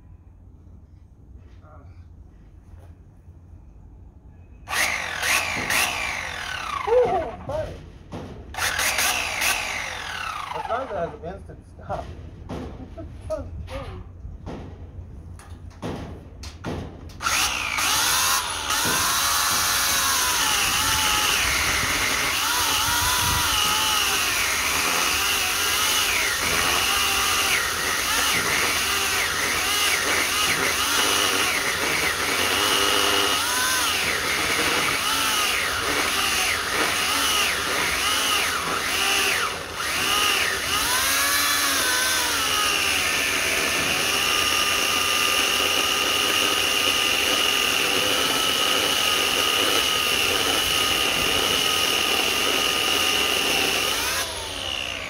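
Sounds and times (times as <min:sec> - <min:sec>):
electric chainsaw cutting wood: 0:04.7 - 0:07.6, 0:08.5 - 0:11.2, 0:17.2 - 0:55.0.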